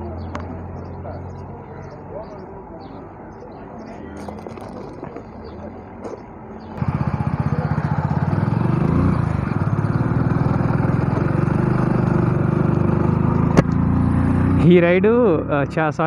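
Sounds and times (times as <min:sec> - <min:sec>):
motorcycle engine running: 0:04.2 - 0:16.0.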